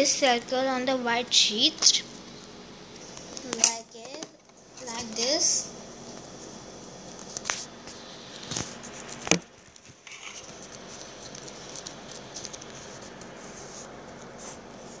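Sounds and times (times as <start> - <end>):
paper rustling and scratching: 7.2 - 15.0.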